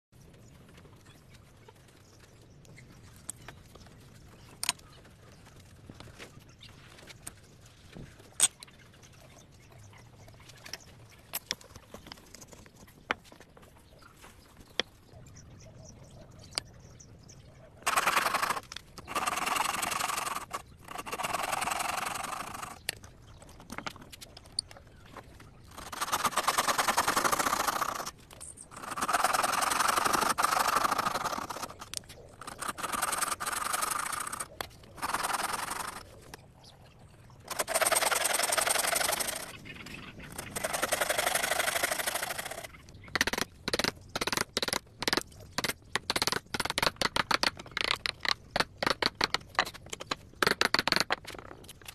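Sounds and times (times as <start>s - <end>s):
hand saw cutting wood: 17.9s - 22.8s, 25.7s - 28.1s, 28.7s - 31.8s, 32.4s - 36.0s, 37.5s - 39.5s.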